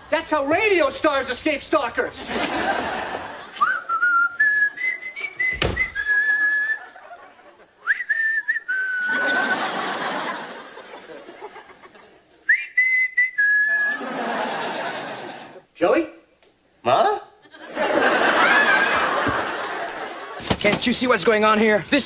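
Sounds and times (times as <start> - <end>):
audience laughing: 2.2 - 3.8, 6.0 - 8.2, 8.9 - 12.4, 13.8 - 15.7, 17.5 - 20.5
man whistling a tune: 3.6 - 6.9, 7.8 - 9.4, 12.5 - 14.0.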